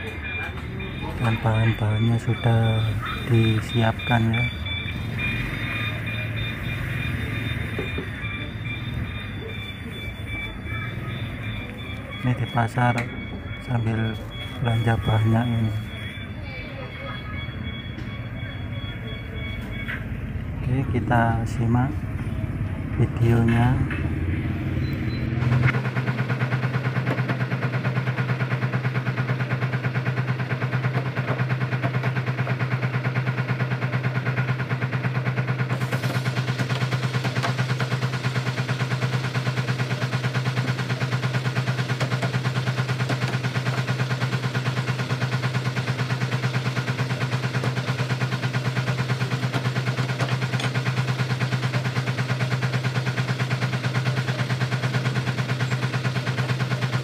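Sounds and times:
meat grinder motor humming: 28.2 - 57.0.

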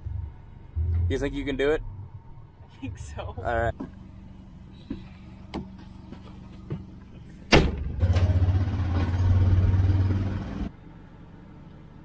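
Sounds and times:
vehicle engine running: 0.0 - 10.7
door slam: 7.5 - 8.4.

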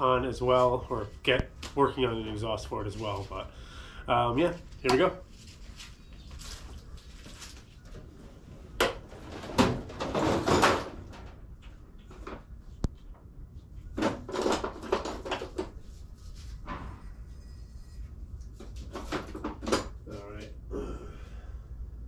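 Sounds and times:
clunks and scrapes of handling: 13.9 - 20.5.

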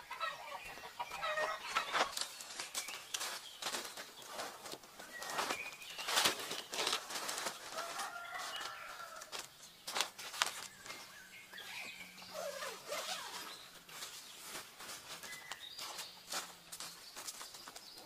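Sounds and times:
bird calling: 10.5 - 13.8.

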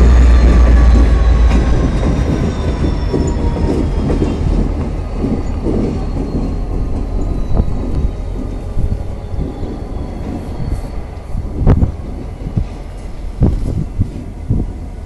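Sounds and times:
diesel locomotives rumbling: 0.0 - 15.0.

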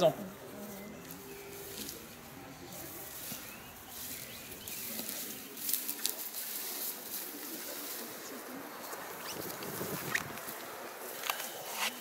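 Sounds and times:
footsteps through rustling grass: 0.0 - 12.0
faint bird chirps: 0.1 - 5.8.

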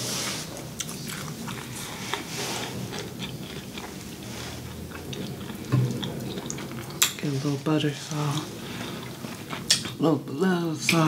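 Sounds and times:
chewing food: 0.3 - 11.0
wet mouth clicks: 9.1 - 10.0.

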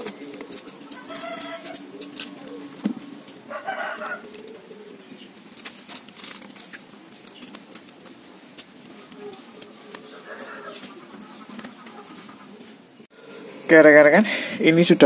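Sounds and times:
small metallic clicks and clinks: 0.0 - 2.6, 3.8 - 9.3.

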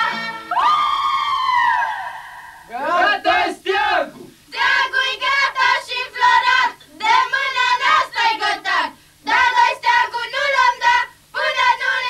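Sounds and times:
women singing unaccompanied folk song: 0.0 - 1.0, 4.5 - 12.0.

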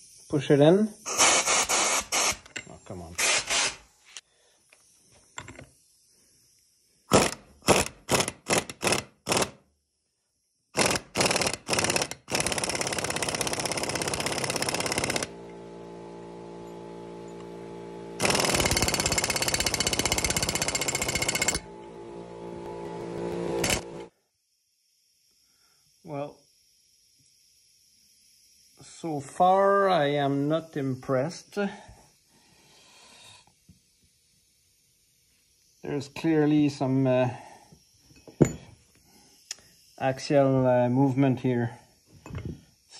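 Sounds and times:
impact wrench hammering: 7.1 - 9.6, 10.8 - 15.5, 18.2 - 21.7, 22.9 - 24.0
steady hum: 14.0 - 24.1.

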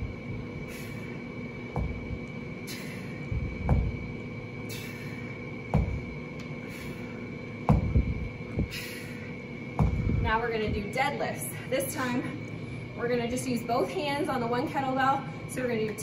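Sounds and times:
steady hum: 0.0 - 16.0
low thud: 3.4 - 4.0, 5.7 - 6.0, 7.7 - 8.2, 9.8 - 10.3.

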